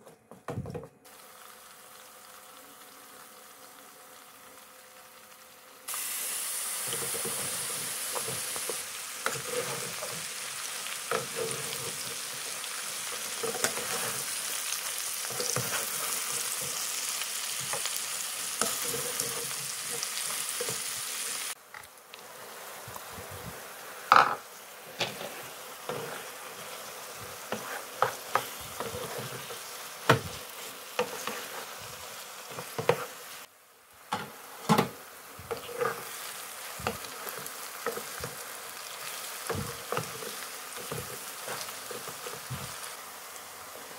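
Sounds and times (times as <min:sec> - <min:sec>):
food sizzling in a pan: 0:01.0 - 0:43.9
wooden spatula scraping a pan: 0:06.8 - 0:21.3, 0:23.2 - 0:33.2, 0:34.1 - 0:42.9.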